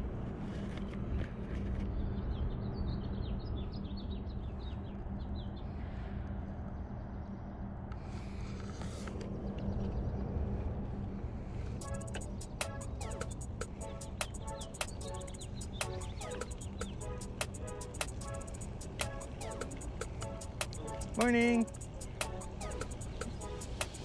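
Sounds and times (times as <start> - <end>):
bicycle tyres and wind rumble: 0.0 - 12.5
music: 11.8 - 24.0
small bird chirping: 11.8 - 24.0.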